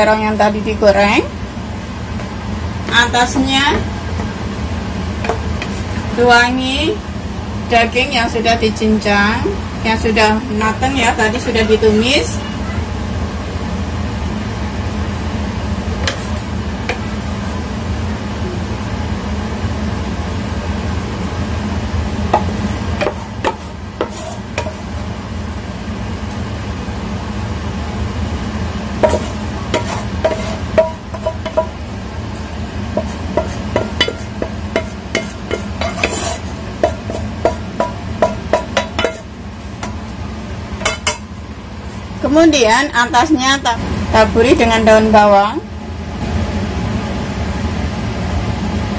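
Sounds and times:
steady low hum: 0.0 - 48.9
wooden spatula scraping a wok: 5.3 - 6.2, 22.4 - 25.1, 29.0 - 31.7, 32.9 - 40.0.

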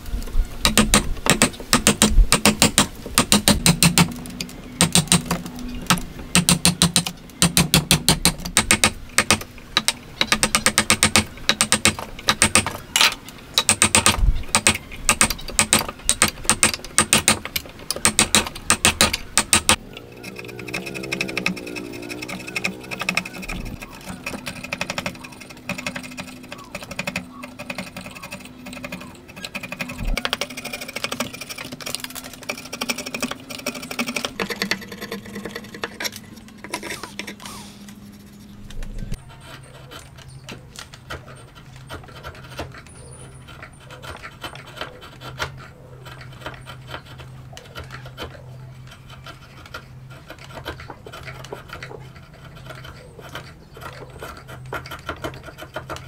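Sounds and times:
steady low hum: 0.0 - 56.0
chisel scraping wood: 13.6 - 56.0.

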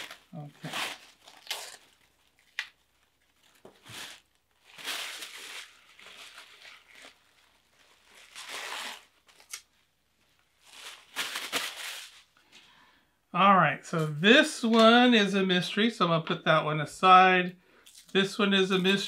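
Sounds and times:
tissue paper crinkling: 0.0 - 12.4.

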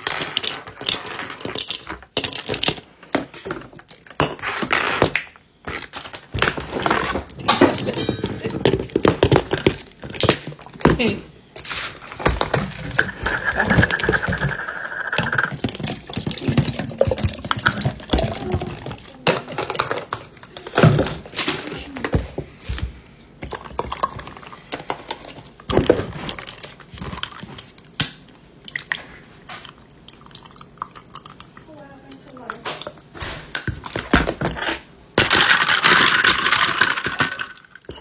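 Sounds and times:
coffee pouring into jar: 13.0 - 15.6.

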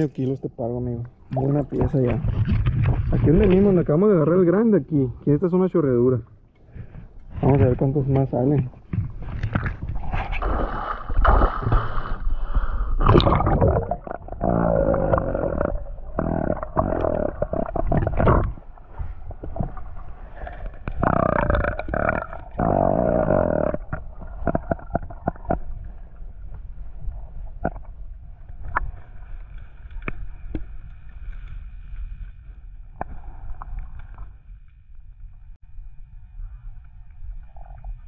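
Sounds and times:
underwater water rumble: 1.0 - 5.4, 6.2 - 38.0
gurgling bubble bursts: 13.0 - 18.7, 21.0 - 25.7.

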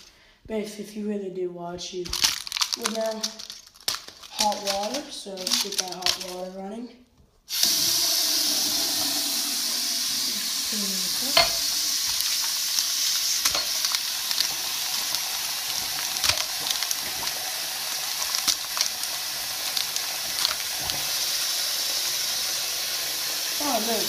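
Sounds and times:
faucet water running into sink: 7.5 - 24.0
water splashing over ice tray: 7.5 - 24.0.

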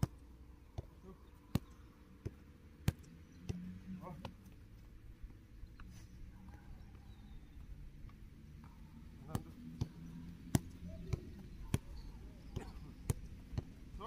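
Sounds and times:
ball hitting goalkeeper gloves: 9.2 - 14.0
football kicks: 9.2 - 14.0.

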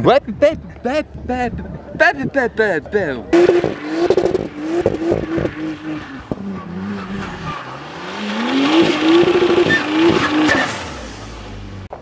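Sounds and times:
car engine revving: 3.3 - 12.0
tyres squealing: 3.4 - 11.0.

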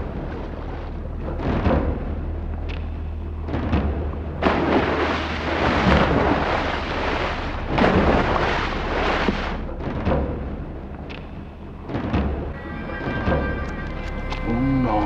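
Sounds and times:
body splashing into water: 3.5 - 10.2
rushing crashing water: 3.5 - 10.8.

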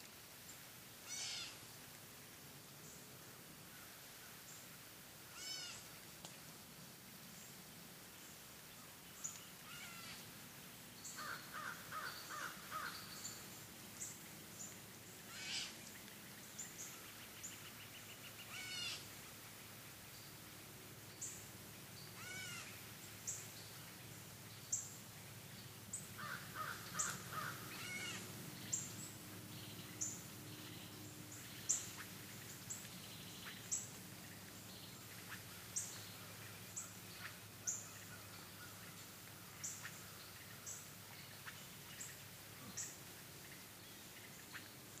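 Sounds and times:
lower bird calls: 1.0 - 1.6, 5.3 - 5.9, 9.1 - 10.3, 11.0 - 19.1, 22.0 - 23.8, 25.9 - 45.0.

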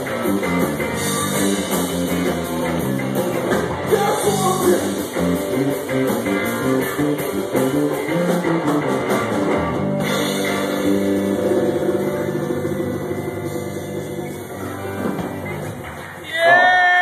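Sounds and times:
electric guitar notes ringing: 0.0 - 15.9
live rock band playing: 0.0 - 17.0.

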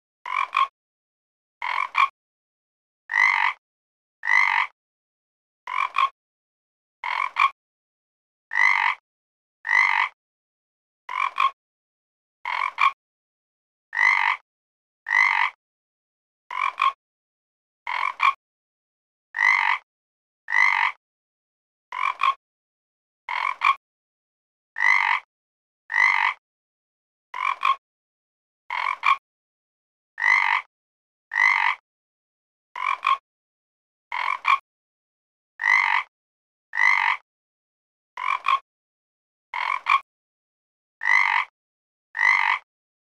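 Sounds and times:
frog croaking: 0.3 - 0.7, 1.6 - 2.1, 3.1 - 3.6, 4.2 - 4.7, 5.7 - 6.2, 7.0 - 7.6, 8.5 - 9.0, 9.6 - 10.2, 11.1 - 11.6, 12.5 - 13.0, 13.9 - 14.4, 15.1 - 15.6, 16.5 - 17.0, 17.9 - 18.4, 19.4 - 19.8, 20.5 - 21.0, 21.9 - 22.4, 23.3 - 23.8, 24.8 - 25.3, 25.9 - 26.4, 27.4 - 27.8, 28.7 - 29.2, 30.2 - 30.7, 31.3 - 31.8, 32.8 - 33.2, 34.1 - 34.6, 35.6 - 36.1, 36.7 - 37.2, 38.2 - 38.6, 39.6 - 40.0, 41.0 - 41.5, 42.2 - 42.6.

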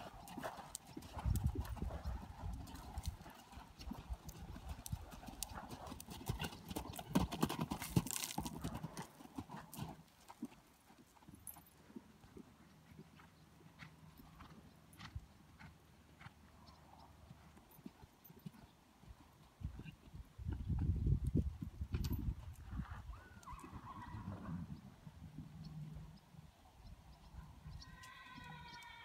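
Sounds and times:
horse hoofbeats on sand: 0.0 - 16.4.

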